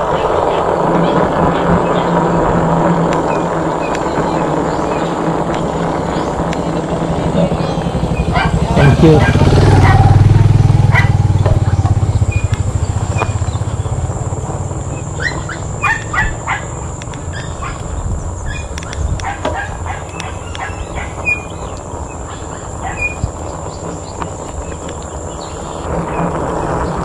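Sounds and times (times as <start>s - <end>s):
low hum: 0.0s - 27.0s
road and wind noise: 0.0s - 27.0s
dog barking: 8.2s - 10.2s, 10.9s - 11.3s, 15.2s - 17.9s, 18.5s - 21.5s, 22.2s - 23.2s.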